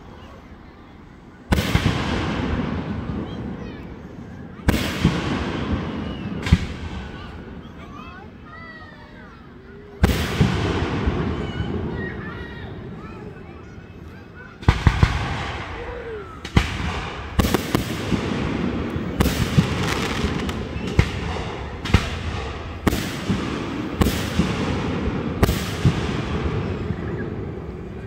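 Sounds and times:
firework bangs: 1.5 - 7.6, 10.0 - 13.1, 14.5 - 28.0
rumbling echo: 1.5 - 7.7, 10.0 - 14.0, 14.6 - 28.0.

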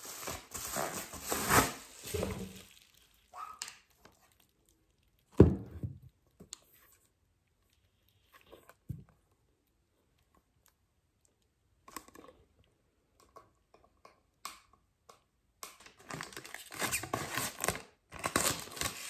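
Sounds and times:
plastic and card rustling: 0.0 - 4.8, 15.7 - 19.0.

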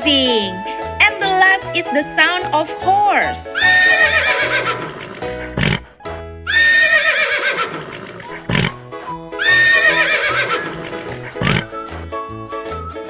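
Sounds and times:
background music with steady beat: 0.0 - 4.6, 10.8 - 13.0
horse whinnying: 3.6 - 5.9, 6.5 - 8.7, 9.4 - 11.7.

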